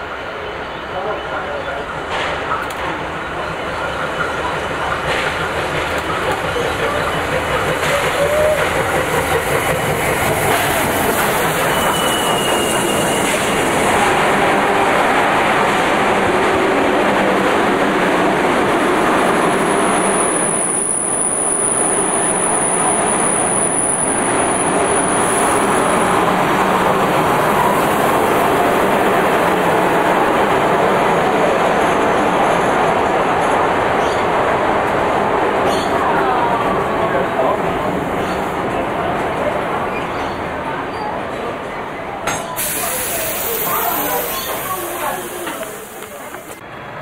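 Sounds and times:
train wheels rumbling on rails: 0.0 - 47.0
high wheel squeals: 11.4 - 13.5, 43.3 - 45.9.

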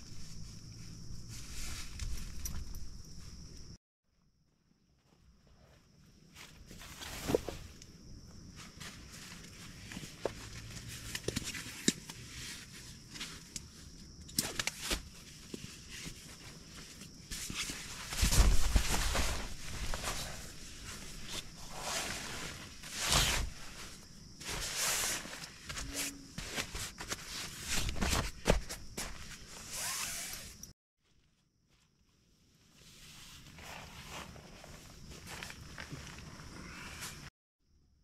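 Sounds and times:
plastic and fabric rustling: 14.6 - 30.3.

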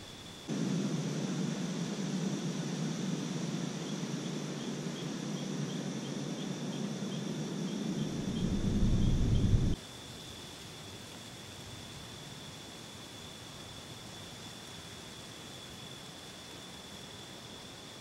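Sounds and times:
insects trilling: 0.0 - 9.8
faint insect chirps: 0.0 - 18.0
low rushing noise: 0.5 - 9.8.

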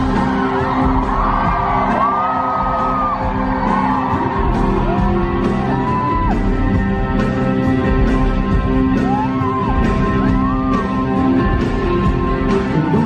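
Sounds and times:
audience whooping: 0.0 - 6.8, 8.8 - 11.7
live rock band playing: 0.0 - 13.0.

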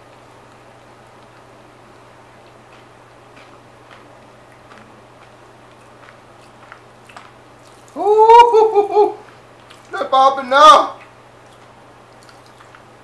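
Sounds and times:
man's rising voiced sound: 8.0 - 9.2.

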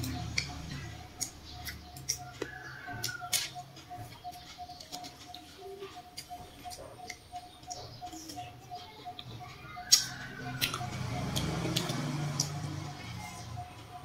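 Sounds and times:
wet chewing and smacking: 0.0 - 13.8.

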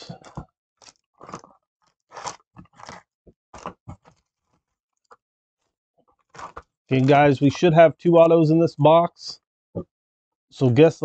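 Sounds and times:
card pack wrappers crinkling: 2.1 - 3.0, 6.3 - 7.2.

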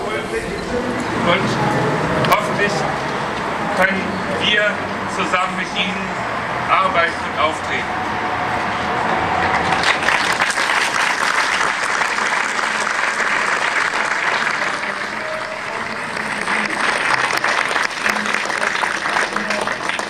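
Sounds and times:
audience applauding: 9.1 - 20.0.

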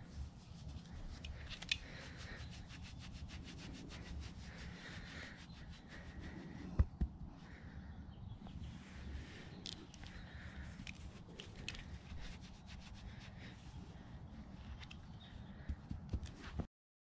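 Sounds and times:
fingers rubbing goat fur: 0.0 - 7.4, 8.7 - 16.7
dull thumps: 6.7 - 7.3.

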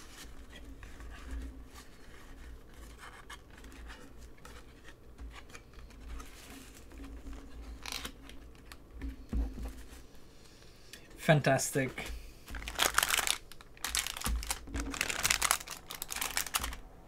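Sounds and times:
card and plastic scraping: 0.0 - 9.9
crisp rustles: 12.0 - 16.8.

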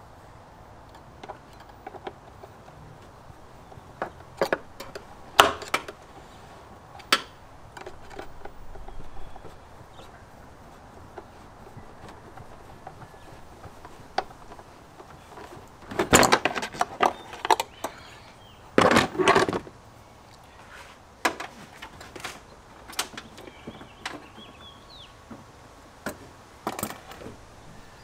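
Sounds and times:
hard plastic parts clicking and knocking: 0.8 - 18.0, 18.7 - 19.8, 21.2 - 24.6, 25.2 - 27.5
plastic parts rattling: 6.9 - 18.0, 18.8 - 19.7.

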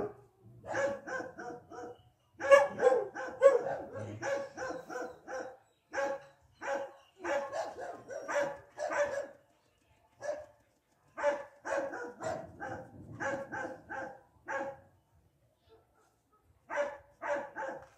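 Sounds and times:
dog barking: 0.0 - 9.4, 11.2 - 14.8, 15.7 - 17.9.

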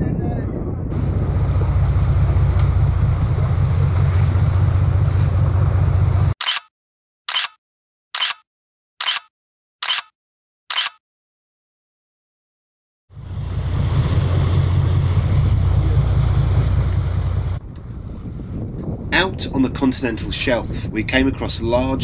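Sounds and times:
wind on microphone: 0.0 - 5.6, 13.2 - 22.0
boat engine rumble: 0.6 - 6.4, 13.1 - 22.0
camera shutter clicks: 6.4 - 6.7, 7.3 - 7.6, 8.2 - 8.4, 9.0 - 10.1, 10.7 - 11.0.

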